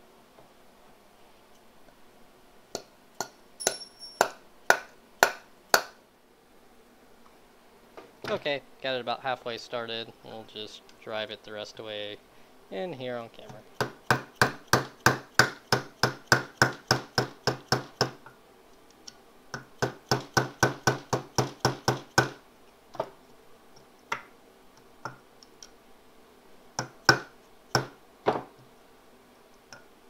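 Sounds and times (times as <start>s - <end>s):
hammer tapping a pin punch: 2.8s - 5.9s, 13.8s - 18.2s, 19.5s - 22.4s, 26.8s - 28.0s.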